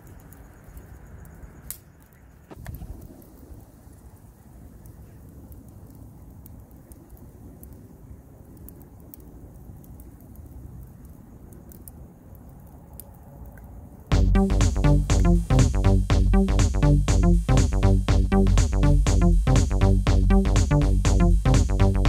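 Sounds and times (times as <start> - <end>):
fire crackles: 0.0 - 22.0
wood fire rumbling: 0.0 - 22.0
electronic music with heavy beat: 14.1 - 22.0.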